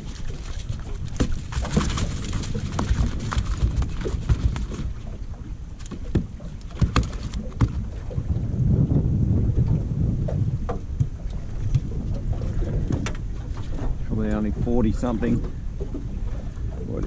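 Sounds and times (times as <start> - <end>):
net pole knocking on boat: 0.0 - 5.2, 5.8 - 8.3, 9.6 - 14.0
steady low rumble: 7.8 - 17.0.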